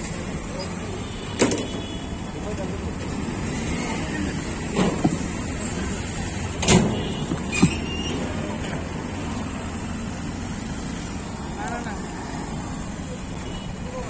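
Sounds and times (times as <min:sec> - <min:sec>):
street noise: 0:00.0 - 0:14.0
plastic containers clacking: 0:04.6 - 0:08.4.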